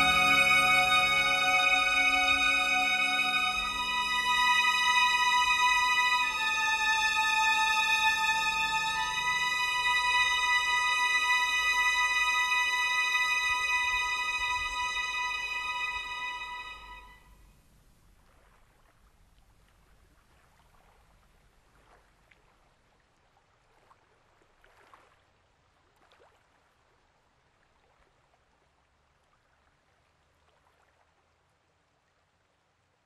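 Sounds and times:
faint steady hiss: 0.0s - 33.0s.

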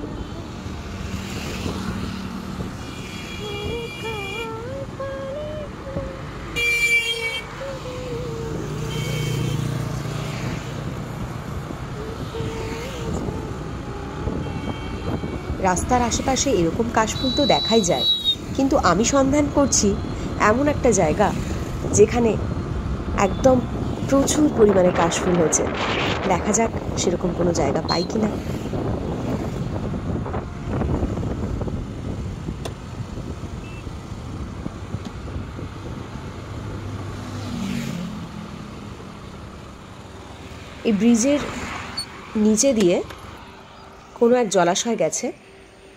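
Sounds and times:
wind rush on microphone: 0.0s - 3.9s, 9.8s - 17.0s, 18.4s - 37.2s
passing traffic: 0.0s - 45.9s
vehicle engine and road noise: 0.0s - 45.9s
motorcycle passing by: 36.2s - 39.1s.

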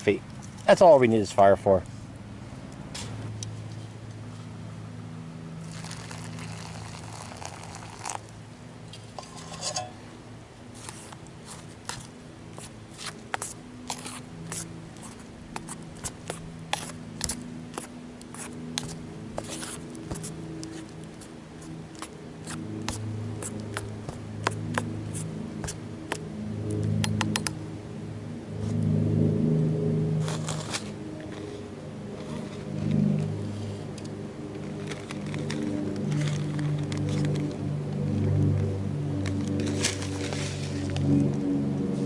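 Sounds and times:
steady low hum: 0.0s - 42.0s
spork scraping metal pan: 9.2s - 10.0s.

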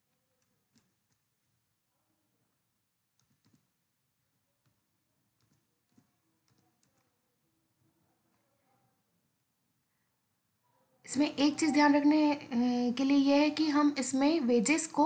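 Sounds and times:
keyboard keystrokes: 3.2s - 3.8s, 5.4s - 7.1s
mouse clicks: 3.2s - 3.8s, 5.4s - 7.1s.

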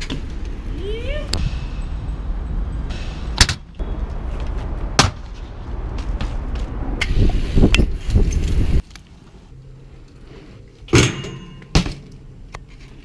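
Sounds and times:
bikes knocking and clattering: 0.0s - 1.0s, 2.9s - 7.1s, 10.8s - 12.2s
bike tyres rumbling on pavement: 4.2s - 8.8s
wind on microphone: 6.8s - 8.8s.

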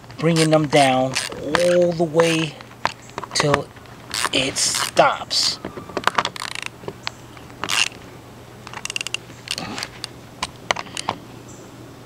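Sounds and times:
ratchet clicking: 6.4s - 6.7s, 7.6s - 8.0s, 8.7s - 9.6s.

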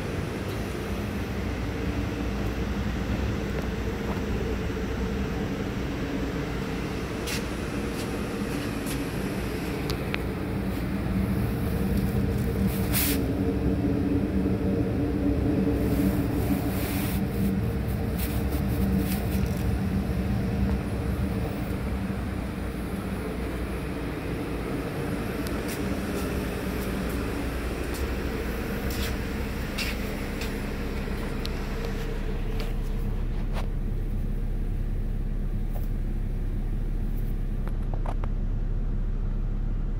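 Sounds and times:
car engine idling: 0.0s - 39.9s.

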